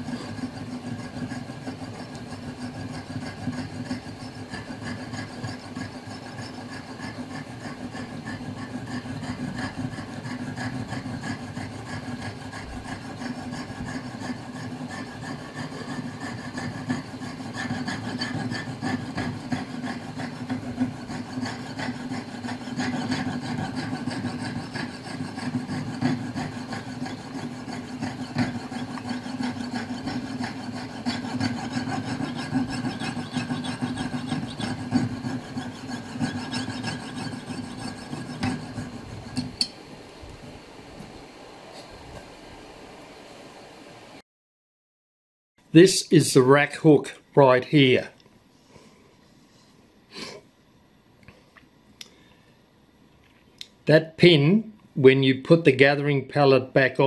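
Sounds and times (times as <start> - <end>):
saw blade rasping on brass: 0.0 - 39.8.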